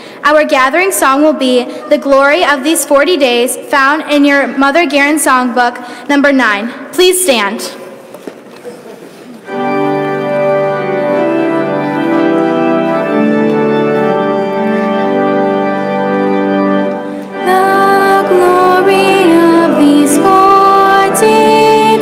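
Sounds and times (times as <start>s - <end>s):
organ playing held chords: 9.4s - 22.0s
people singing a hymn: 17.3s - 22.0s.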